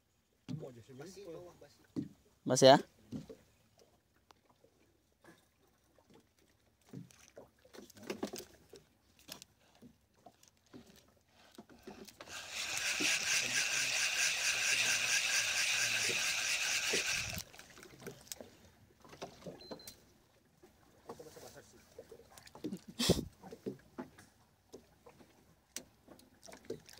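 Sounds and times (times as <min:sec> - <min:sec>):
fishing reel whirring: 0:12.2 - 0:17.6.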